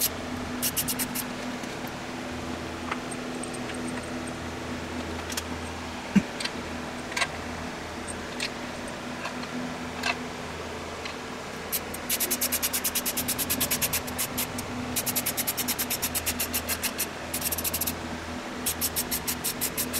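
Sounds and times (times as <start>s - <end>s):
steady low hum: 0.0s - 19.9s
fast even run of clicks: 12.0s - 18.0s.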